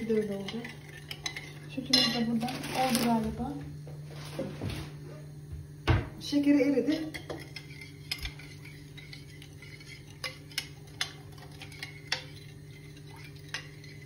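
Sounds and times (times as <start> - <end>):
steady low hum: 0.0 - 14.0
spoon clinking on dishware: 0.4 - 2.3.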